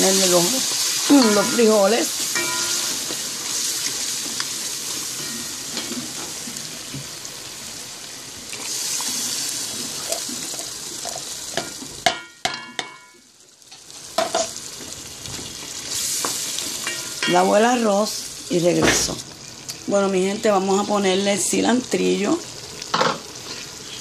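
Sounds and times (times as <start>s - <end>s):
sauce sizzling in a pot: 0.0s - 24.0s.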